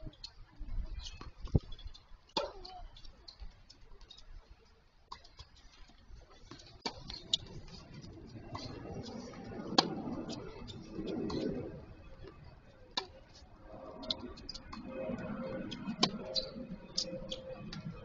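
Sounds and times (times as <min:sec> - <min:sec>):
tennis balls bouncing: 0:05.1 - 0:11.6, 0:12.2 - 0:13.4, 0:14.0 - 0:18.0
racket hitting ball: 0:09.7 - 0:10.3.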